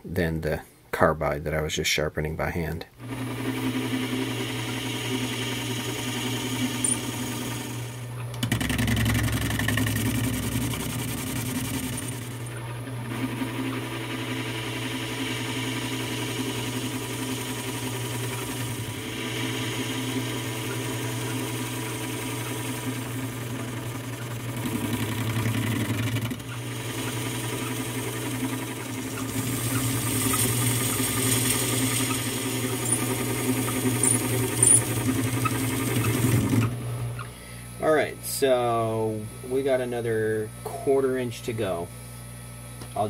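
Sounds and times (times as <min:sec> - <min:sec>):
metal lathe running: 0:03.0 - 0:37.1.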